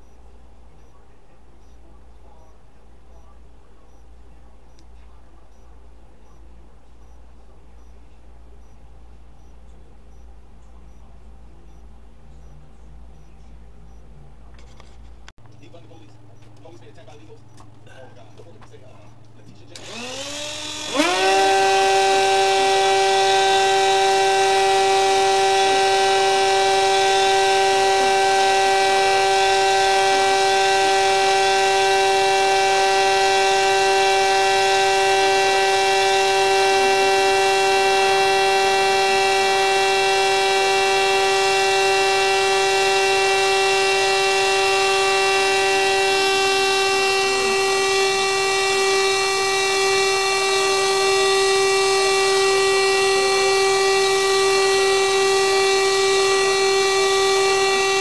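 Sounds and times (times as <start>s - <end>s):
carpet shearing machine whining: 19.7s - 58.0s.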